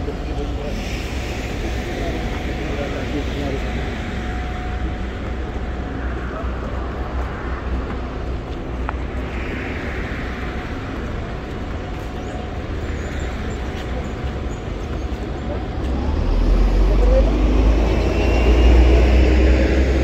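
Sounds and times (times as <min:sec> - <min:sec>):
traffic rumble: 0:00.0 - 0:20.0
vehicles passing: 0:00.0 - 0:20.0.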